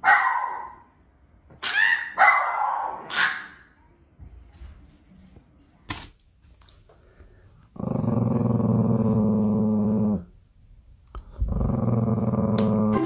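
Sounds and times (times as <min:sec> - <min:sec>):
small dog growling: 0:07.7 - 0:10.3, 0:11.3 - 0:13.0.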